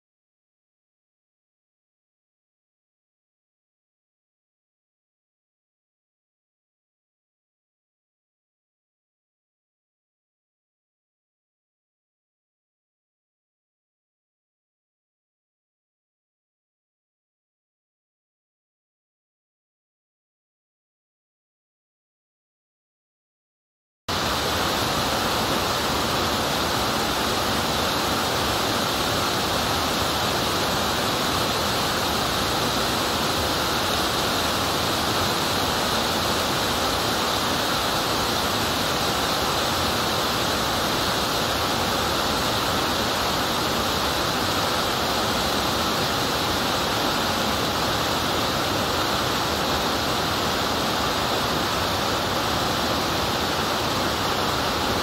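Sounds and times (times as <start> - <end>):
waterfall rushing: 24.1 - 55.0.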